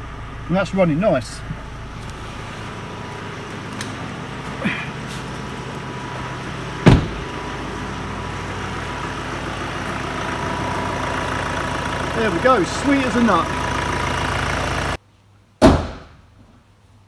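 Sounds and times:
diesel engine idling: 0.0 - 15.0
loud thump: 6.8 - 7.3, 15.6 - 16.2.

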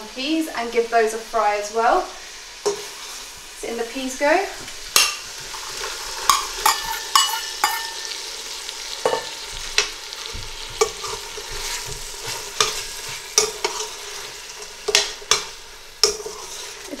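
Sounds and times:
food sizzling in a pot: 0.0 - 17.0
metal spoon clinking and scraping pot: 4.9 - 8.3, 9.0 - 9.9, 10.6 - 17.0.

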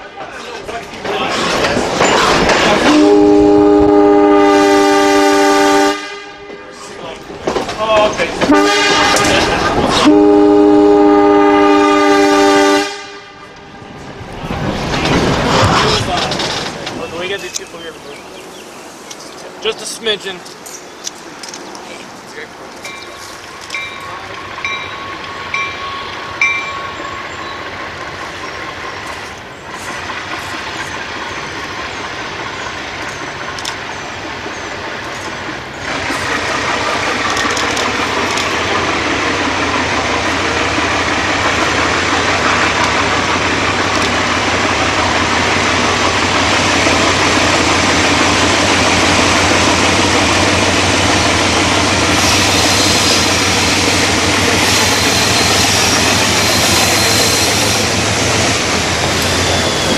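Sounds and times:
diesel locomotive engine: 0.0 - 59.9.

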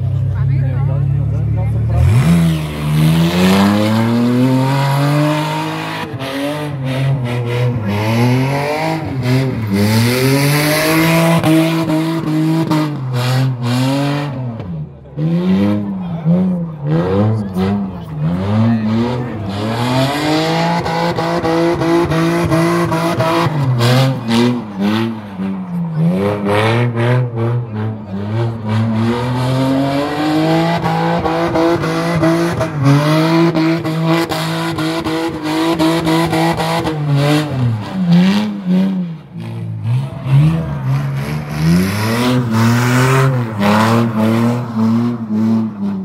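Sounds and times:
car engine at high revs: 0.0 - 46.0.

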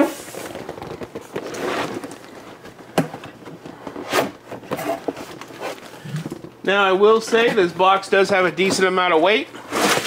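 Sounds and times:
cardboard rubbing and scraping: 0.0 - 2.6, 3.7 - 6.2.

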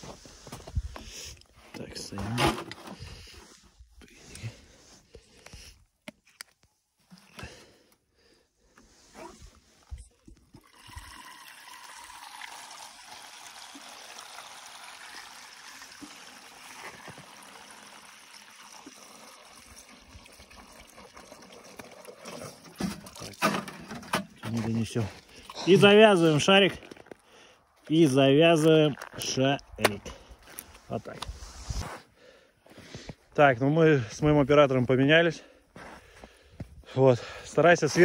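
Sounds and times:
water pouring into balloon: 10.2 - 23.8.

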